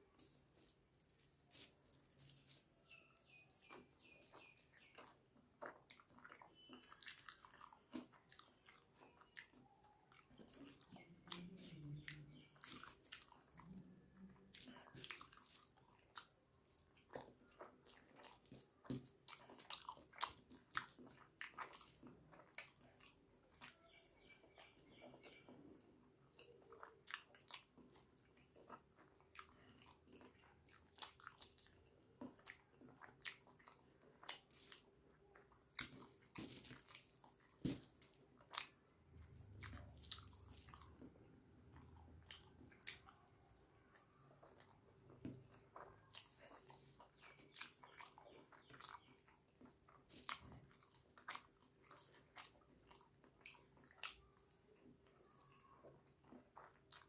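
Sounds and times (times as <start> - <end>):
soft squishes of food by hand: 0.0 - 57.0
chewing and mouth smacks: 0.2 - 57.0.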